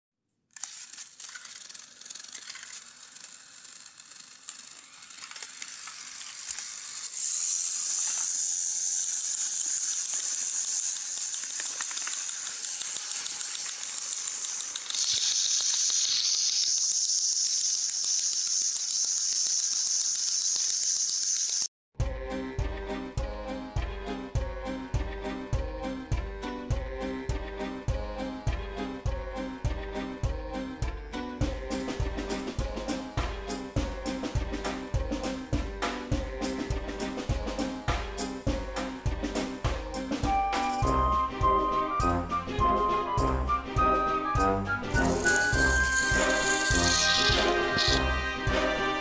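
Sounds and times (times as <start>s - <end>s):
toy train motors whirring: 0.5s - 21.7s, 31.4s - 41.1s, 44.2s - 49.0s
music: 22.0s - 49.0s.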